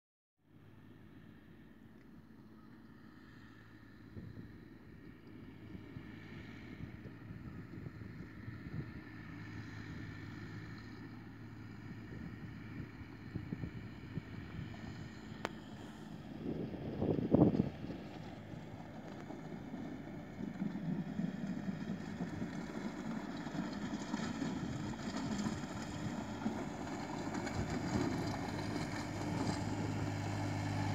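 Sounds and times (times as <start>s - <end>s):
distant tractor engine: 4.6s - 30.9s
wind buffeting microphone: 16.3s - 18.2s, 24.2s - 30.4s.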